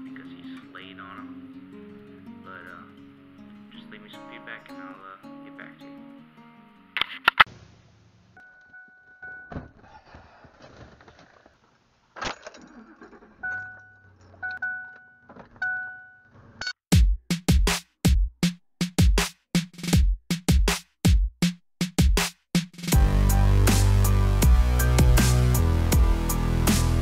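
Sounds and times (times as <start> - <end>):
car warning chime dinging: 13.5 - 16.2
music with electronic drum beat: 16.9 - 27.0.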